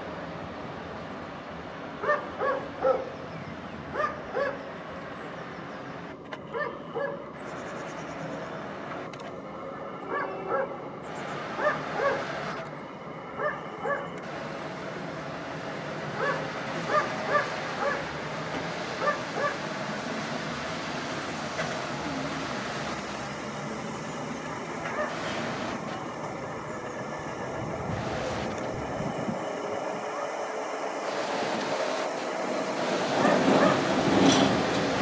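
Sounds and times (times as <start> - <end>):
truck engine rumbling: 0.0 - 35.0
dog barking: 2.0 - 3.1, 4.0 - 4.6, 6.5 - 7.2, 10.1 - 10.7, 11.6 - 12.2, 13.4 - 14.1, 16.2 - 18.0, 19.0 - 19.6, 24.9 - 25.2, 33.2 - 33.8.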